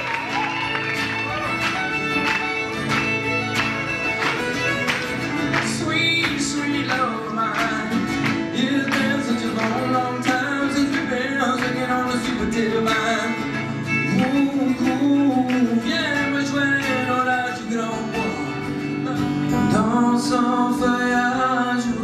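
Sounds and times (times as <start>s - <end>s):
fiddle sliding melody: 0.0s - 6.2s
acoustic guitar strumming: 0.0s - 22.0s.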